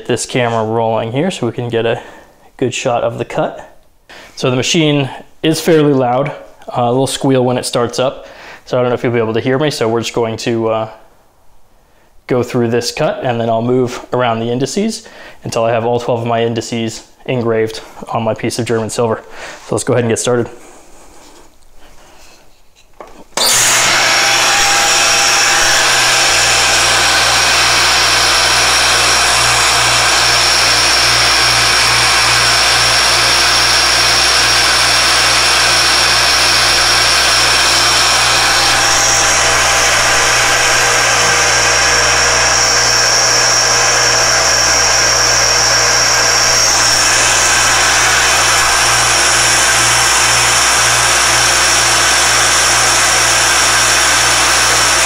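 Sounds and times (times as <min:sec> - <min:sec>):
engraving machine spindle whine: 0:23.4 - 0:55.0.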